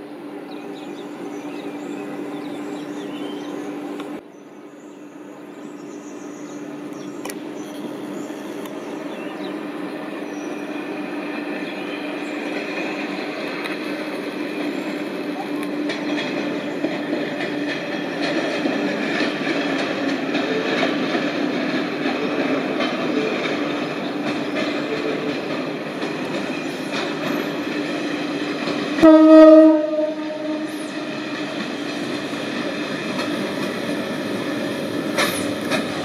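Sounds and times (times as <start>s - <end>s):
rail rumble: 0.0s - 36.0s
train horn blast: 29.0s - 31.1s.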